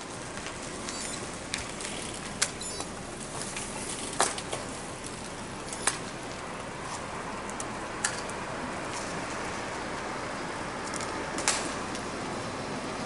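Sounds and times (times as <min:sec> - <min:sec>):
sharp snapping cracks: 0:10.9 - 0:12.1.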